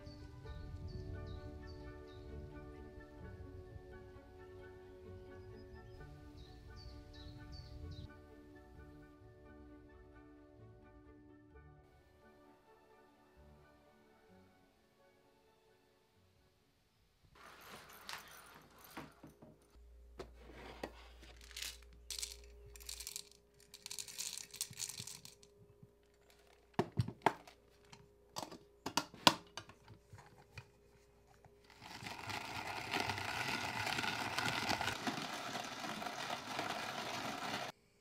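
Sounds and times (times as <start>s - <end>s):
rustling and crinkling: 17.4s - 37.7s
hand-cranked coffee grinder grinding: 31.6s - 37.7s.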